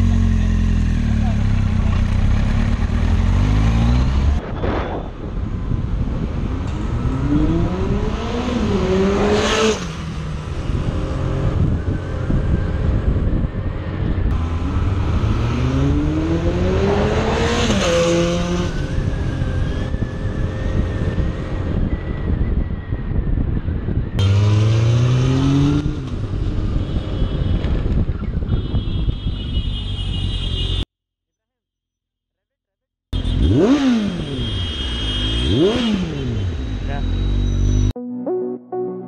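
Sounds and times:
road noise: 0.0s - 30.9s, 33.2s - 38.0s
motorcycle engine accelerating hard: 14.2s - 22.0s, 35.2s - 36.5s
motorcycle rushing past: 14.3s - 21.4s.

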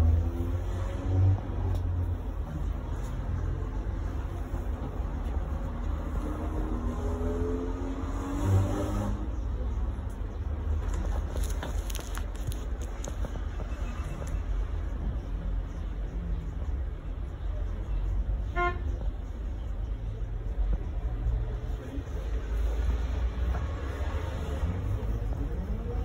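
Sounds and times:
tram rumbling: 0.0s - 7.6s.

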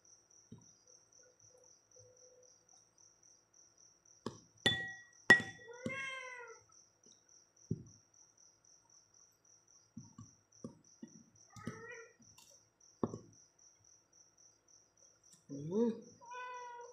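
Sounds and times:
cricket chirping: 0.0s - 16.9s
cat meowing: 5.7s - 6.6s, 11.5s - 12.2s, 16.2s - 16.9s.

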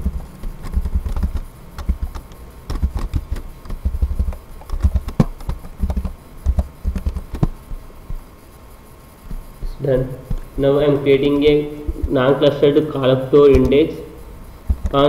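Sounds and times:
keyboard keys clicking: 0.0s - 7.5s.

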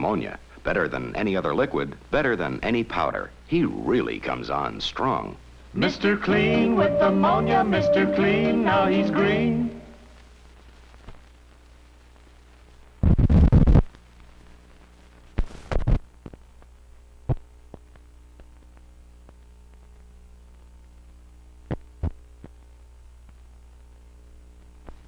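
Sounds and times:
film soundtrack hum: 5.0s - 10.2s.

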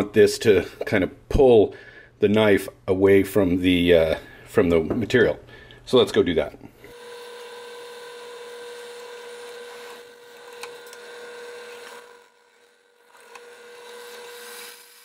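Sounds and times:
drill press humming: 6.9s - 15.0s.

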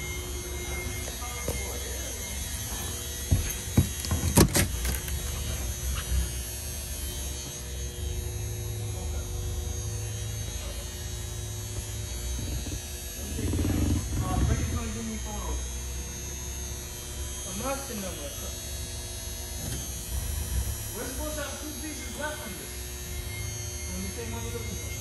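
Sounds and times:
low hum: 4.8s - 15.8s.

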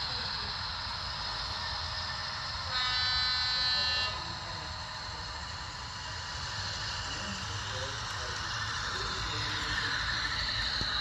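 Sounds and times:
model locomotive horn blast: 2.7s - 4.4s.

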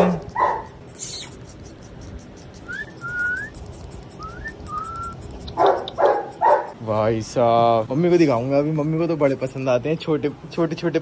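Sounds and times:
person whistling softly: 2.7s - 3.6s, 4.2s - 5.2s.

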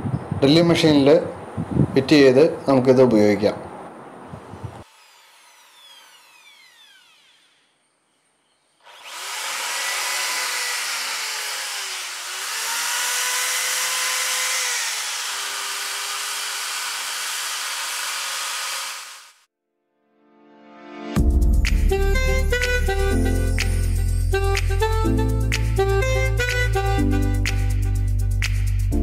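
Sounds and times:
drill with sanding wheel on steel: 4.8s - 8.2s, 8.8s - 19.5s.

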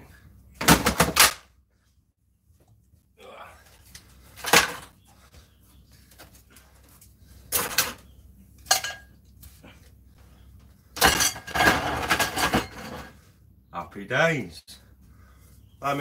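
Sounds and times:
sheet-metal parts clattering: 4.4s - 5.0s, 11.0s - 13.2s.

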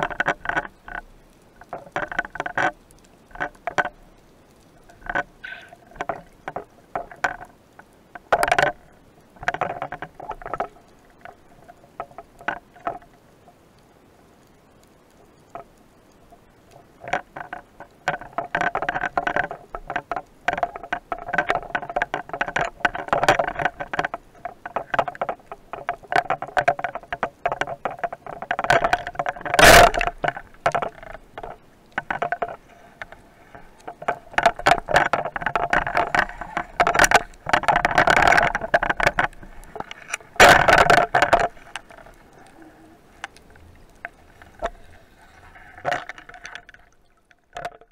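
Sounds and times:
underwater clicking and crackling: 0.0s - 47.9s.

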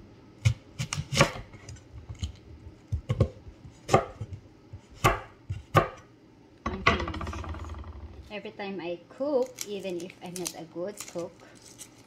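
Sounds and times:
knife chopping onion on board: 0.4s - 2.3s, 2.9s - 6.1s.

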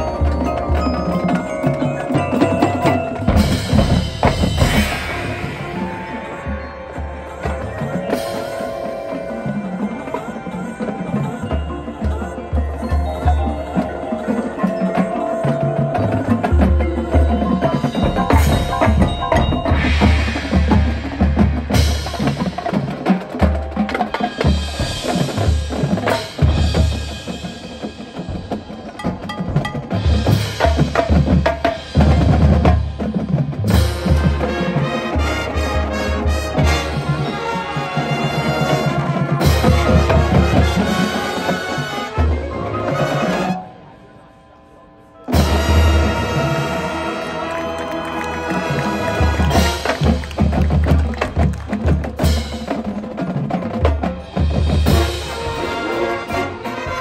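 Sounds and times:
mallet keyboards and chimes: 0.0s - 35.0s, 38.3s - 56.1s
drumline: 0.0s - 43.9s, 45.3s - 57.0s
brass: 33.6s - 44.0s, 45.3s - 51.6s, 54.2s - 57.0s.

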